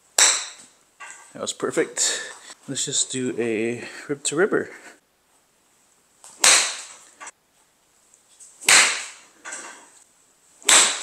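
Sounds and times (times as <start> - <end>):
golf club striking a mat: 0.2 - 1.2, 6.3 - 7.1, 8.6 - 9.9, 10.6 - 11.0.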